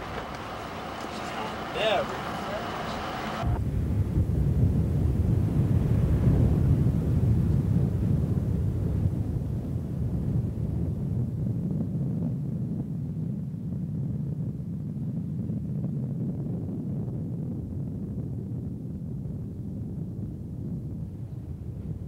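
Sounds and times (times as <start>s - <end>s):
car engine and road noise: 0.0s - 3.6s.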